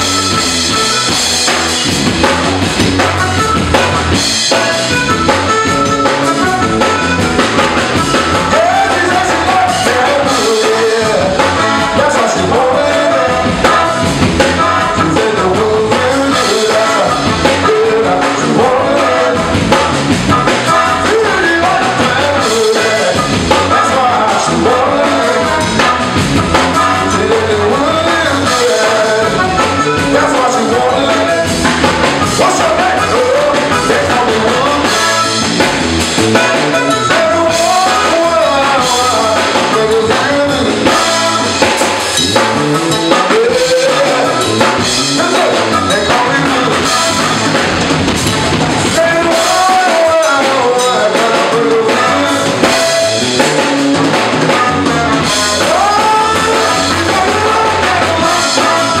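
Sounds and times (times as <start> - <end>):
live band playing: 0.0 - 59.0
man singing: 7.7 - 47.8, 48.8 - 59.0.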